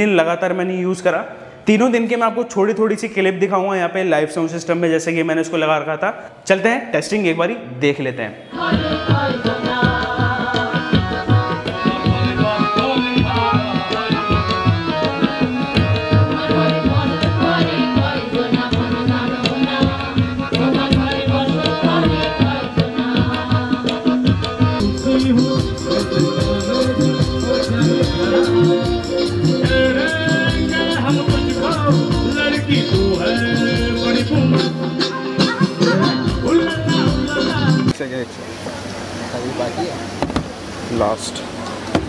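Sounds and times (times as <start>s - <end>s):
loud music with steady drumming: 8.6s - 37.9s.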